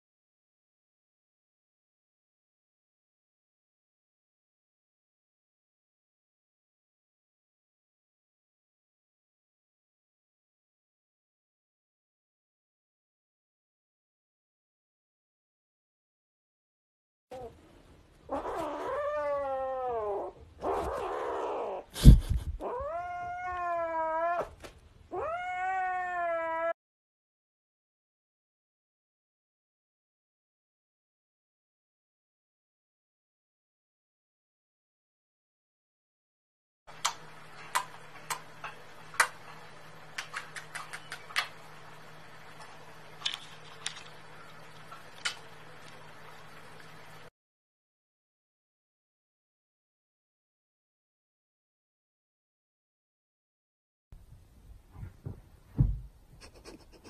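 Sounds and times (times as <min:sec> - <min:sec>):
kitten yowling: 0:18.3 - 0:21.9, 0:22.6 - 0:26.8
lip smacking kisses: 0:37.0 - 0:38.5, 0:39.2 - 0:39.4, 0:40.2 - 0:41.6.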